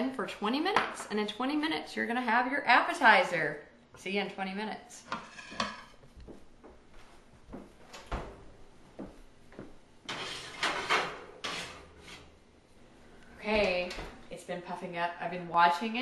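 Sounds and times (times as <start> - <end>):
pan scraping across rack: 10.1 - 12.3.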